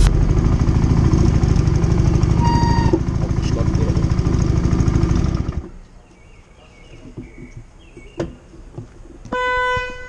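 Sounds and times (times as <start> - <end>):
motorcycle engine running: 0.0 - 5.7.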